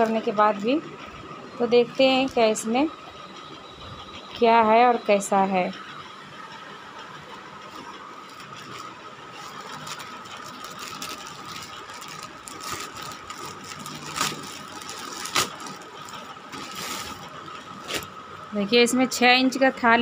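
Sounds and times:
plastic mailer crinkling: 0:08.3 - 0:18.1.

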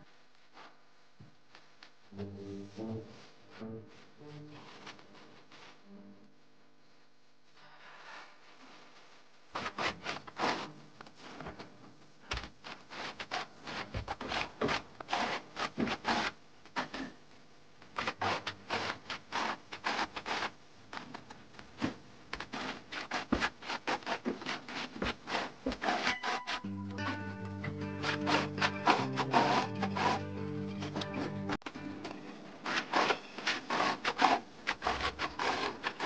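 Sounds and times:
hand tool scraping cement wall: 0:09.6 - 0:11.5, 0:12.6 - 0:17.2, 0:18.0 - 0:21.1, 0:21.8 - 0:27.2, 0:27.8 - 0:31.4, 0:32.6 - 0:36.0.

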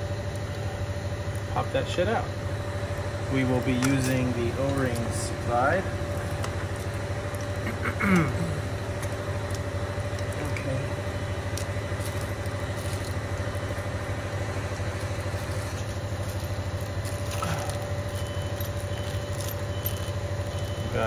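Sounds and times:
low machine hum: 0:00.0 - 0:21.0
metal chain clicks: 0:15.9 - 0:20.9.

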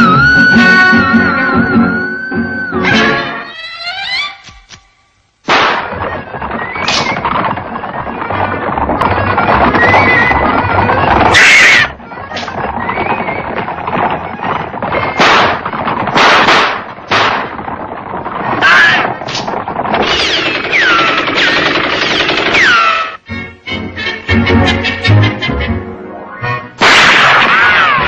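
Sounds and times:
loud gun bangs: 0:05.4 - 0:06.1, 0:15.1 - 0:17.8, 0:26.8 - 0:28.0
falling ricochet whines: 0:05.5 - 0:08.2, 0:18.8 - 0:23.2, 0:26.8 - 0:28.0
cartoon gunfire barrage: 0:05.5 - 0:12.8, 0:13.9 - 0:23.2, 0:26.8 - 0:28.0.

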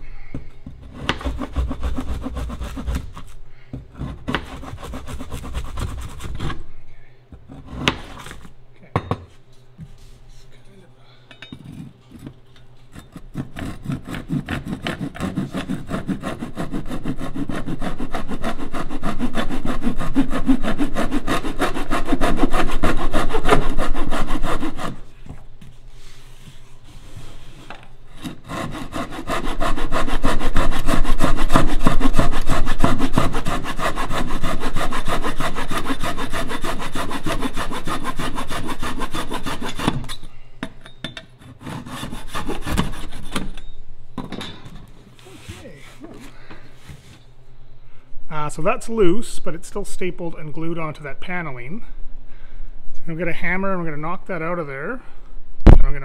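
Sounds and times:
hand saw cutting wood: 0:00.8 - 0:06.6, 0:07.5 - 0:08.4, 0:13.0 - 0:25.1, 0:28.1 - 0:40.2, 0:41.5 - 0:43.5.

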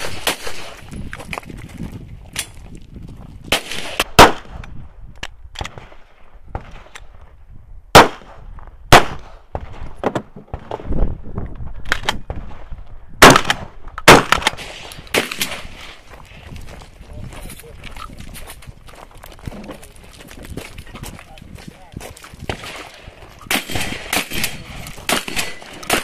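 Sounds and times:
gunshots: 0:00.0 - 0:00.8, 0:03.5 - 0:04.7, 0:07.9 - 0:10.8, 0:11.9 - 0:16.0, 0:22.5 - 0:26.0.

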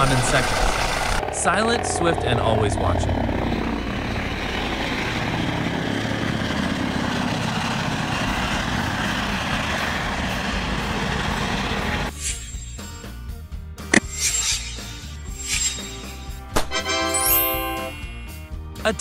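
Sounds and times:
helicopter turbine and rotor noise: 0:00.0 - 0:13.1.

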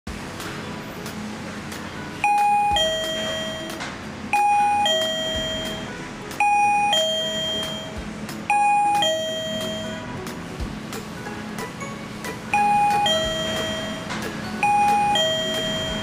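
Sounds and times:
electronic doorbell chime: 0:02.2 - 0:10.1, 0:12.5 - 0:16.0.

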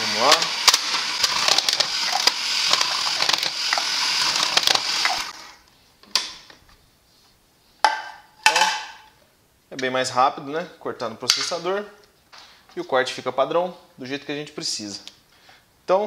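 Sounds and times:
potatoes crunching: 0:00.0 - 0:05.4
food processor whirring: 0:00.0 - 0:05.5.

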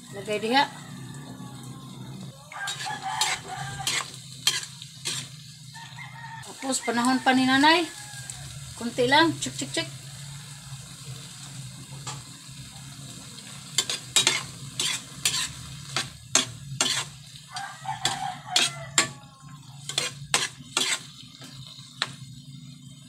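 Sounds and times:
light sizzle: 0:00.0 - 0:23.0
metal spatula scraping pan: 0:02.5 - 0:05.5, 0:13.7 - 0:22.2.

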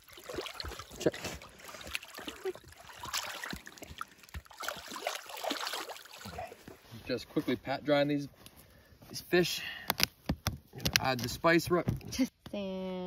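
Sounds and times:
water splashing and sloshing: 0:00.0 - 0:07.2.

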